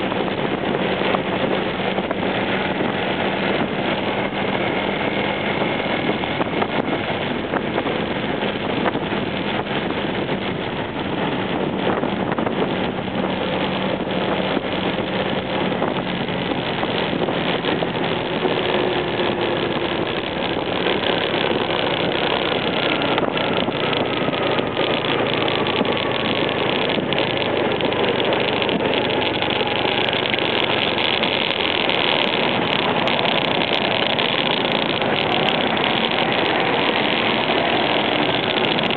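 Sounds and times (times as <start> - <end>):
scooter engine running: 0.0 - 38.9
wind rush over microphone: 0.0 - 38.9.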